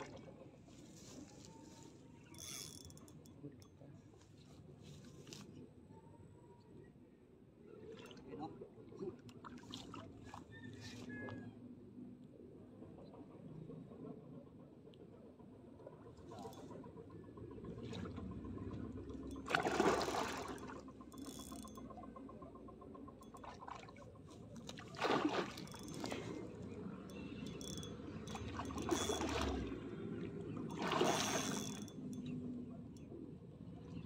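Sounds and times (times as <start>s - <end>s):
fish splashing at surface: 19.5s - 20.8s, 24.7s - 26.5s, 30.6s - 31.8s.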